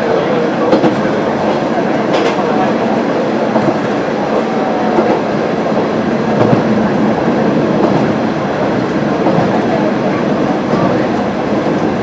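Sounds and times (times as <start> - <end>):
railcar engine and wheels: 0.0 - 12.0
wheels clacking on rail joints: 0.4 - 2.8, 4.9 - 12.0.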